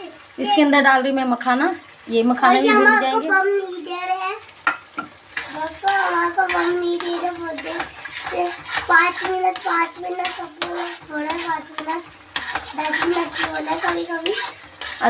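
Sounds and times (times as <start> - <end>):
metal spatula scraping a steel pan: 5.4 - 15.0.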